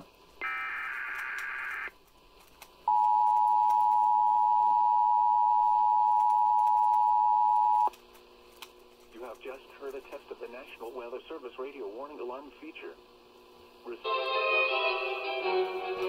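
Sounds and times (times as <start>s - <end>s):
buzzy digital data tones: 0.0s - 1.9s
steady alarm tone: 0.4s - 1.9s.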